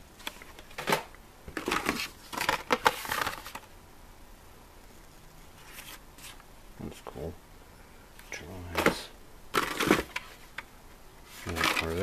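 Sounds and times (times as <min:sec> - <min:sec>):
plastic blister packs crinkling: 0:11.4 - 0:12.0.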